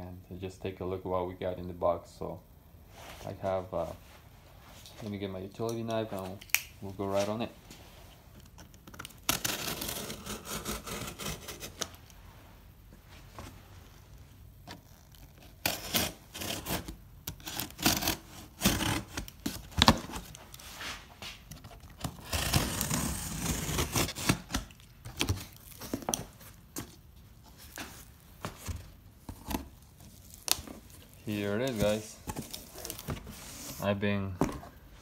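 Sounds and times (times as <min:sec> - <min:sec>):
tape tearing: 0:08.4 - 0:12.2, 0:14.7 - 0:33.9
knife slitting packing tape: 0:08.9 - 0:12.0, 0:15.3 - 0:20.3, 0:21.9 - 0:24.8
cardboard flaps scraping: 0:25.2 - 0:34.8.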